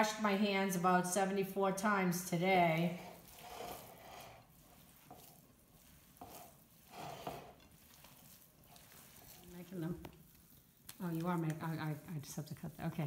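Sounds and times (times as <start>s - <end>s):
hands squishing raw meat: 7.7s - 13.0s.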